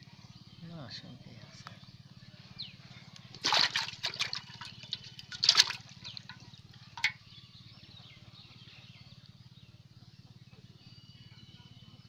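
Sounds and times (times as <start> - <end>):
fish splashing in metal pot: 3.4 - 7.2.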